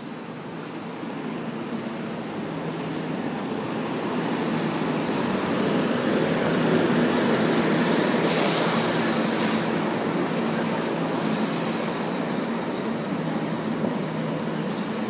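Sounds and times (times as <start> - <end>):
bus passing: 1.1 - 15.0
loud hiss: 8.2 - 10.0.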